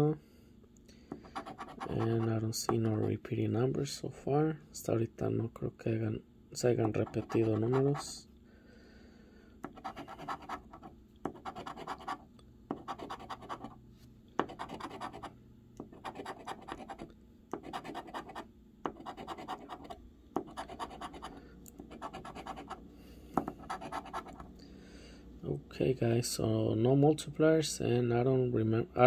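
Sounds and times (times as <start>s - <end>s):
coin scratching a lottery ticket: 1.2s - 2.3s, 6.8s - 8.2s, 9.7s - 13.8s, 14.4s - 15.3s, 15.9s - 22.8s, 23.5s - 24.5s.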